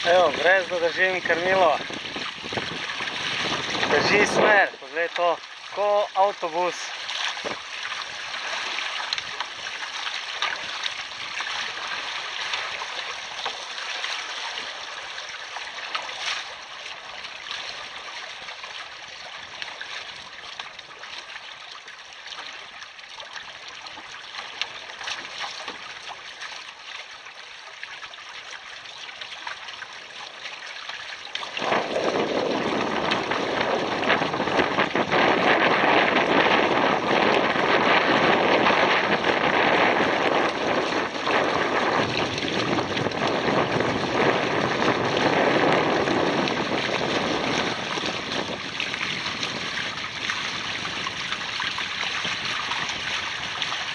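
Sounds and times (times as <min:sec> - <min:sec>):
wind on microphone: 0:00.0 - 0:05.1, 0:06.2 - 0:09.7, 0:31.4 - 0:53.9
water rushing along hulls: 0:00.0 - 0:53.9.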